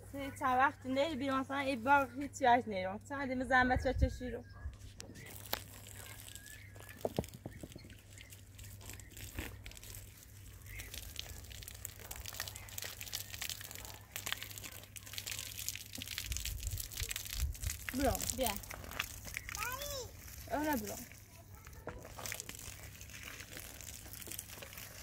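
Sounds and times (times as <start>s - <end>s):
plants crackling and rustling: 4.9s - 25.0s.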